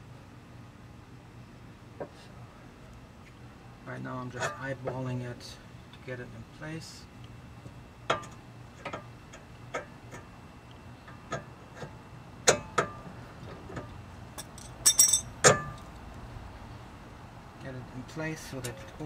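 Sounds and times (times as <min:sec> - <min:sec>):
metallic clicks and clinks: 0:14.4 - 0:15.8.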